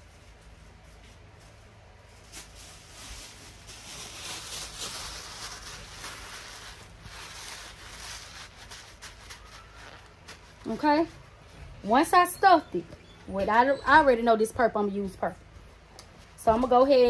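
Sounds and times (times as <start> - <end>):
tissue paper rustling and crinkling: 0.0 - 11.6.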